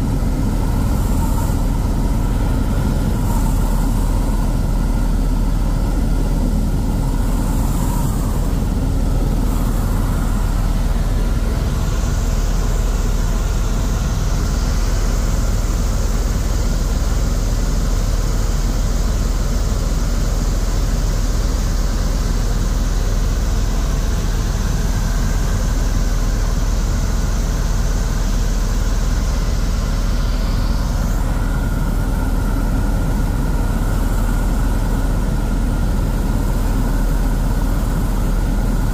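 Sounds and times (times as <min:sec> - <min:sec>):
helicopter rotor rumble: 0:00.0 - 0:38.9.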